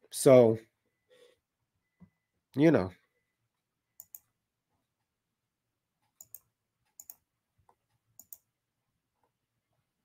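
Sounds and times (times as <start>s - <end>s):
computer mouse double-clicking: 6.2s - 7.2s, 8.2s - 8.4s.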